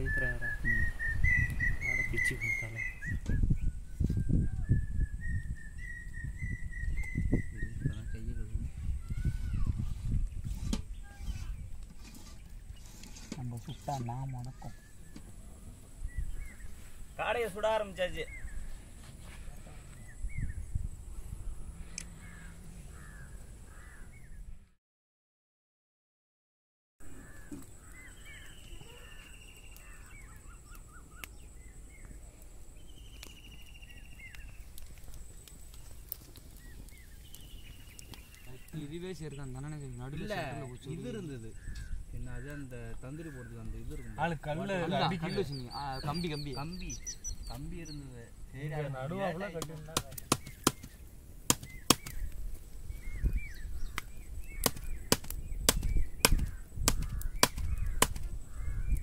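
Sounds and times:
small birds chirping: 0:00.0 - 0:24.6, 0:27.0 - 0:59.0
wood fire crackling and popping: 0:27.2 - 0:47.8, 0:48.7 - 0:59.0.

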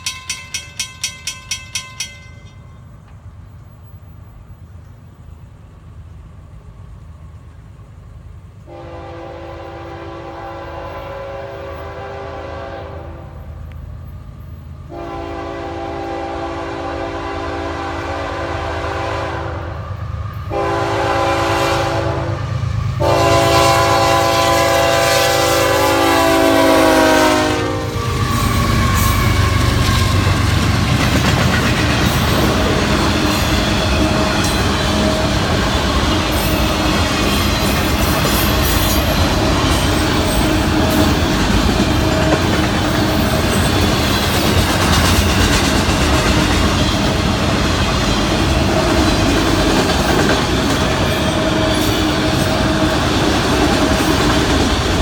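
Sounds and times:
locomotive horn blasts: 0:08.7 - 0:13.5, 0:14.9 - 0:19.8, 0:20.5 - 0:30.2
freight cars rumbling: 0:26.8 - 0:55.0.

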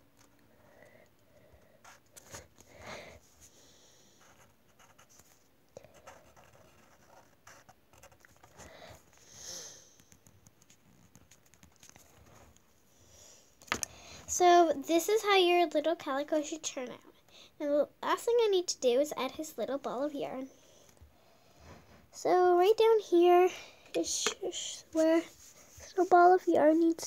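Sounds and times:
marker scratching on paper: 0:04.2 - 0:05.4, 0:06.0 - 0:08.7.

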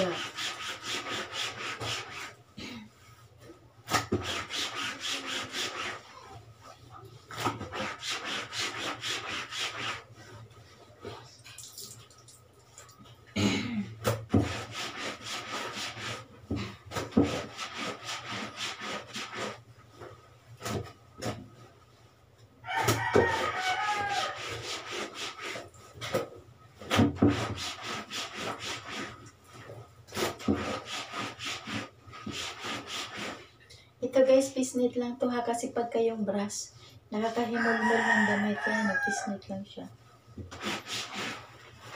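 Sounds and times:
brush scrubbing wet clothes: 0:00.0 - 0:02.4, 0:03.4 - 0:13.1, 0:14.3 - 0:22.0, 0:22.7 - 0:33.6, 0:40.4 - 0:41.9.

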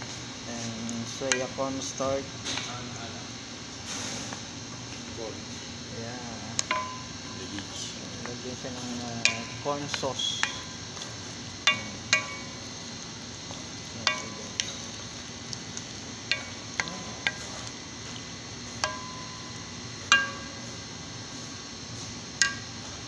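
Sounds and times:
faint sizzle: 0:00.0 - 0:23.0
sauce stirring: 0:00.1 - 0:22.9
wooden spatula knocking pan: 0:06.6 - 0:07.1, 0:08.2 - 0:12.6, 0:14.0 - 0:15.2.

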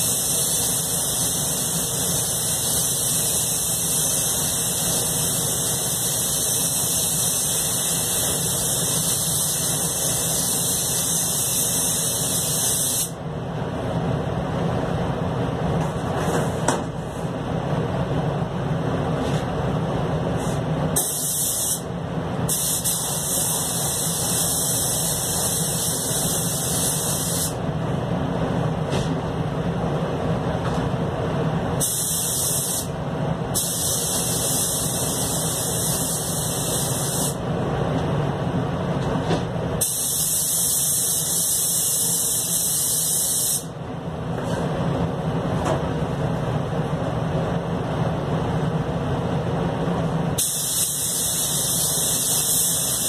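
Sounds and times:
spray gun hissing: 0:00.0 - 0:13.2, 0:21.0 - 0:21.8, 0:22.5 - 0:27.6, 0:31.8 - 0:32.9, 0:33.6 - 0:37.4, 0:39.8 - 0:43.7, 0:50.4 - 0:53.0
rumble of booth air: 0:13.1 - 0:40.1, 0:43.7 - 0:53.0.

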